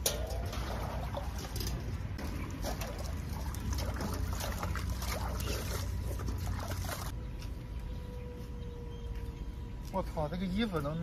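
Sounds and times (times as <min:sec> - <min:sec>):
water dripping: 0:00.0 - 0:07.1
water splashing in metal basin: 0:00.0 - 0:07.1.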